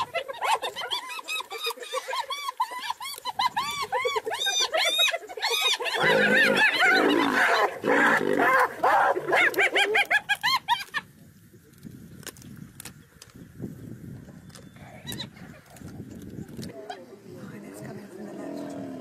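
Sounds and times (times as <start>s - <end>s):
hyenas giggling and yelping: 0.0s - 11.1s
lioness growling: 5.9s - 9.6s, 17.9s - 19.0s.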